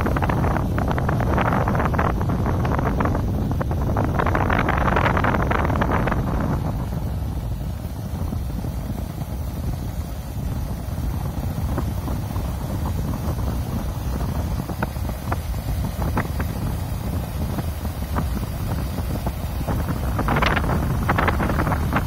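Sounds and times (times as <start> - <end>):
wind blasting across microphone: 0.0 - 22.0.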